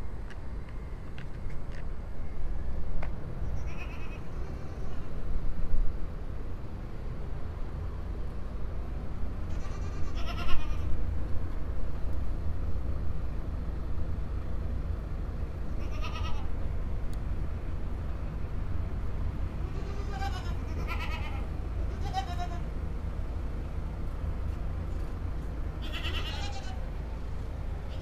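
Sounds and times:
steady low rumble: 0.0 - 28.0
goats bleating: 9.5 - 10.9, 15.8 - 16.5, 19.7 - 22.7, 25.8 - 26.8.

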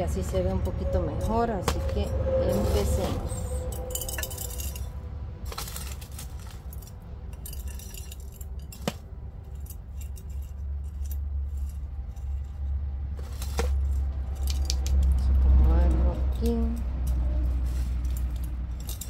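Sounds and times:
steady low rumble: 0.0 - 19.0
trowel scraping potting mix: 0.3 - 3.6
metal clinks: 3.4 - 12.7, 16.3 - 19.0.

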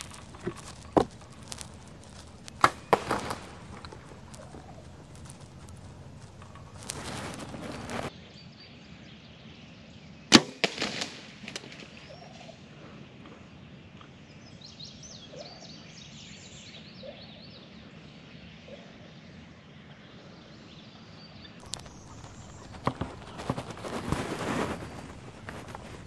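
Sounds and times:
bow string release crack: 0.0 - 8.1
small knocks and rattles: 0.0 - 8.1, 21.6 - 26.0.

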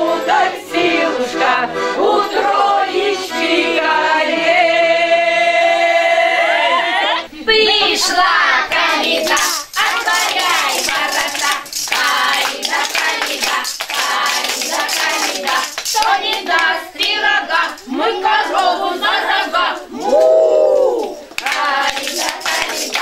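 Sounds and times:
children singing: 0.0 - 23.0
wooden spoons clacking together: 9.2 - 18.0, 21.4 - 23.0.

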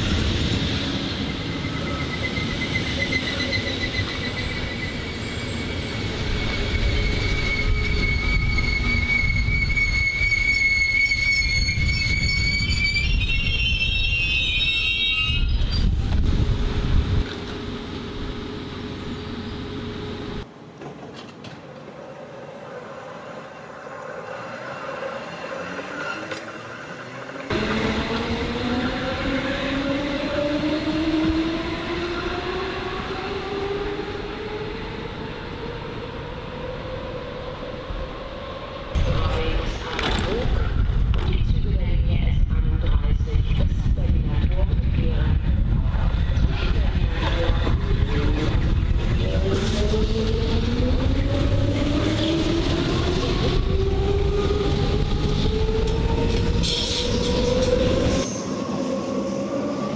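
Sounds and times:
high squeal: 0.5 - 16.1
train wheels rumbling on rails: 15.4 - 59.9.

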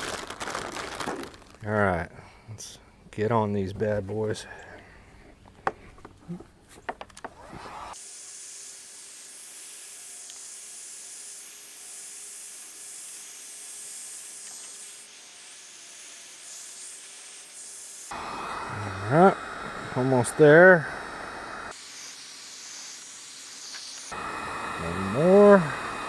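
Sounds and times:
heat gun blowing hot air: 7.4 - 8.4, 10.2 - 26.0.

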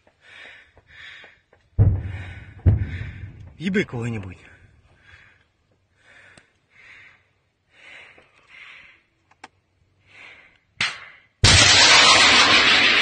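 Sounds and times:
person breathing: 0.1 - 3.6, 4.9 - 9.3, 9.9 - 11.4.

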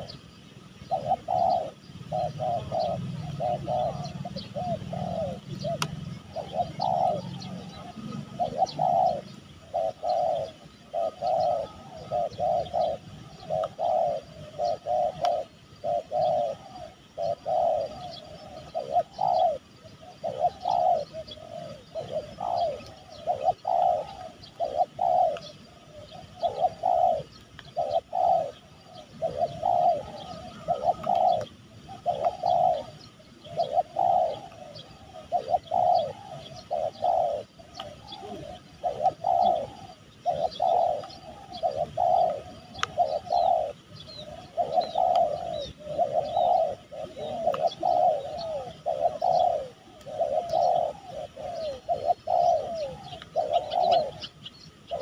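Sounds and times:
doves cooing: 0.0 - 55.0.

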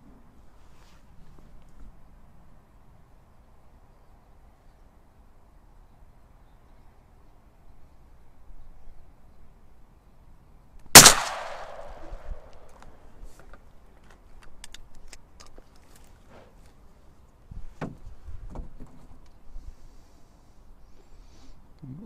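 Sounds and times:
rustling: 0.5 - 1.9
shotgun shot echoing: 11.0 - 12.6.

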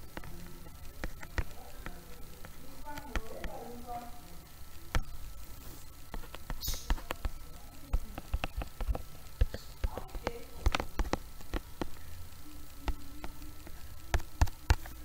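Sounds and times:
stylus tapping on tablet screen: 6.1 - 12.0.

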